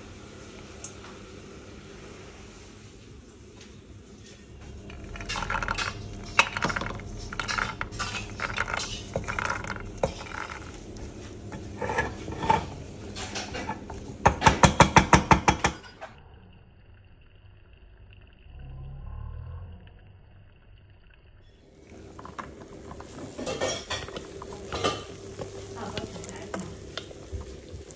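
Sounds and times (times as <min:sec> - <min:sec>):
wooden stirrer scraping saucepan: 0:04.7 - 0:14.6, 0:21.9 - 0:27.9.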